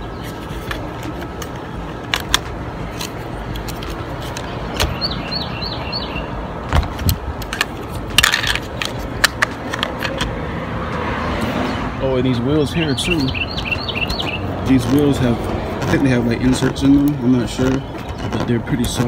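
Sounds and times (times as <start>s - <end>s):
plastic rattling: 6.8s - 10.4s, 13.5s - 19.0s.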